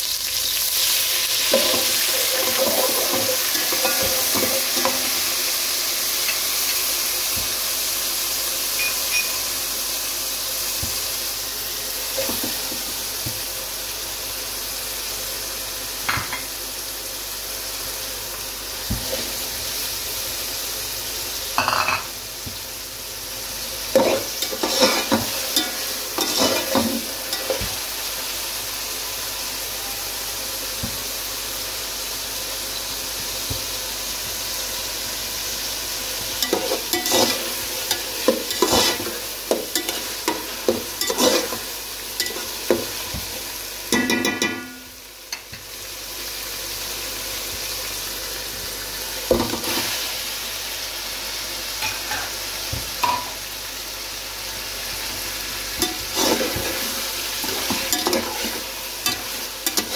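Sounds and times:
food sizzling in oil: 0:00.0 - 0:59.9
utensil scraping pan: 0:01.4 - 0:05.2, 0:23.9 - 0:27.7, 0:36.4 - 0:42.8, 0:55.8 - 0:59.9.

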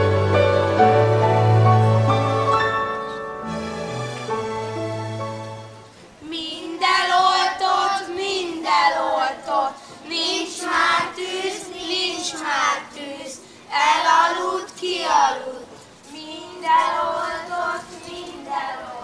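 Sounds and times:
held instrumental chord: 0:00.0 - 0:06.0
children singing: 0:06.3 - 0:19.0.

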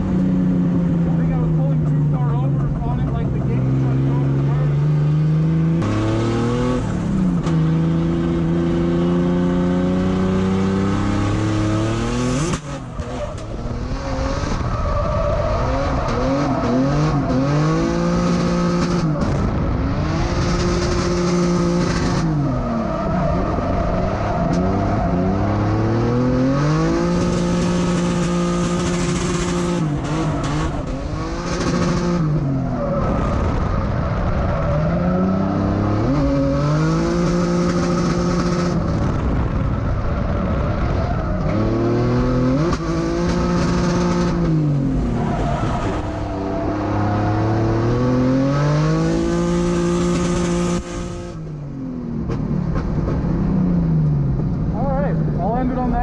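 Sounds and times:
car engine revving hard: 0:00.6 - 0:39.7, 0:40.5 - 0:51.5
tires squealing: 0:12.2 - 0:51.1.

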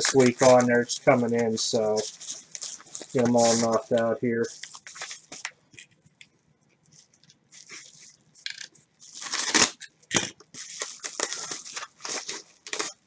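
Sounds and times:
envelope and mailer crinkling: 0:00.0 - 0:06.0, 0:07.2 - 0:13.0
sharp plastic crunches: 0:08.4 - 0:13.0.

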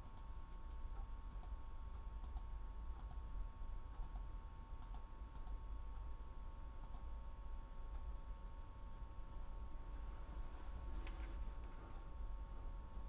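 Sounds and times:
keyboard keys tapped slowly: 0:00.0 - 0:03.2, 0:03.9 - 0:05.6, 0:06.8 - 0:07.1
steady low hum: 0:00.0 - 0:13.0.

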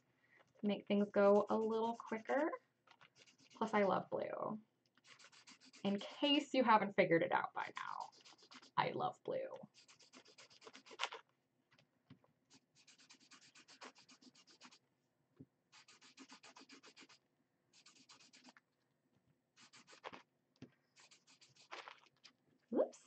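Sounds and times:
marker scratching on paper: 0:01.2 - 0:04.0, 0:05.0 - 0:06.4, 0:07.7 - 0:08.9, 0:09.6 - 0:11.2, 0:12.5 - 0:14.8, 0:15.7 - 0:18.6, 0:19.5 - 0:20.3, 0:20.9 - 0:22.3.

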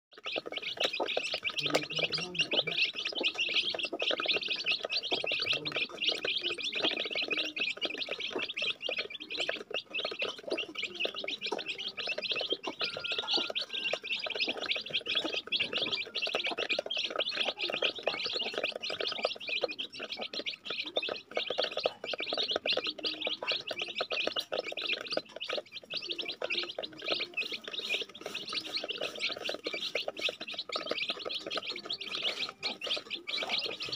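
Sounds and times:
chicks peeping: 0:00.1 - 0:33.9.

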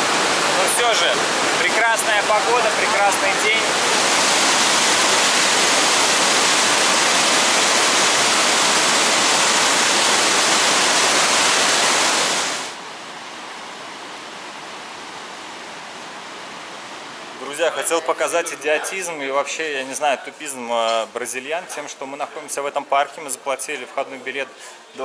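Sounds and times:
waterfall rushing: 0:00.0 - 0:12.8.

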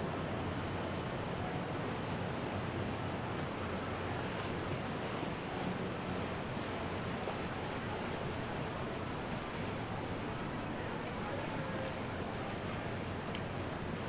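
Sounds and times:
water flowing: 0:03.5 - 0:14.0.

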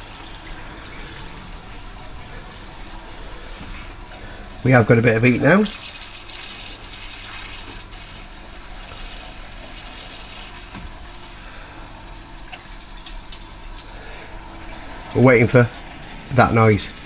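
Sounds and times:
circulating pump running: 0:00.0 - 0:17.0.

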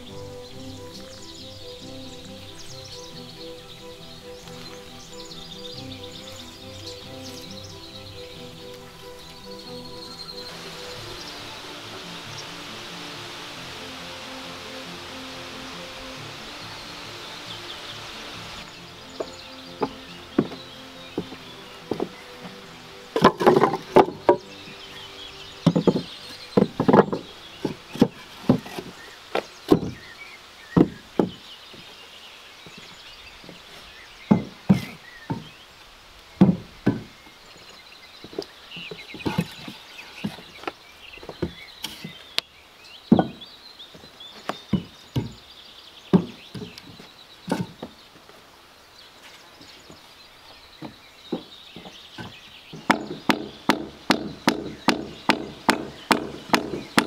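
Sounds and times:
wooden boards knocking: 0:19.0 - 0:30.1, 0:30.7 - 0:32.0, 0:34.3 - 0:35.6, 0:36.4 - 0:37.3, 0:38.2 - 0:42.3, 0:43.1 - 0:45.5, 0:46.1 - 0:48.0, 0:50.8 - 0:57.0.

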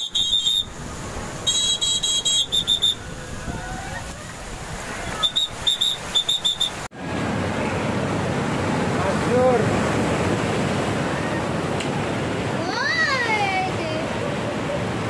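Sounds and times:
shrill whistle blasts: 0:00.0 - 0:00.7, 0:01.4 - 0:03.0, 0:05.2 - 0:06.9
surf breaking on a beach: 0:00.0 - 0:15.0.

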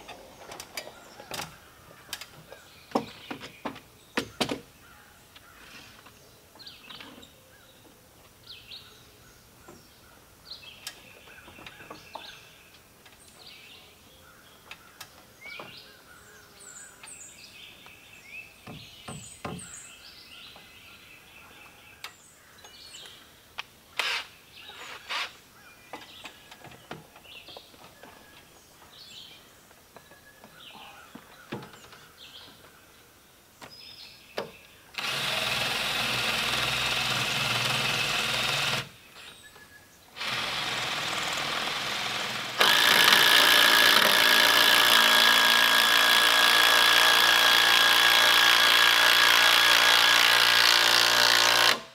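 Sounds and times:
birds chirping and trilling: 0:00.0 - 0:46.5
sharp knocks on wood: 0:18.6 - 0:19.7.

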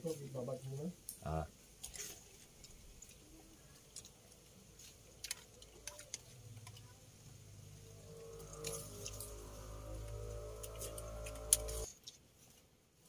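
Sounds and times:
low hum: 0:07.2 - 0:11.9.

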